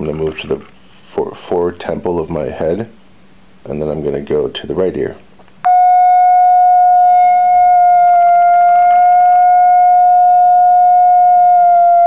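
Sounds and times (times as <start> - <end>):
high-pitched electronic alarm tone: 5.7 - 12.0.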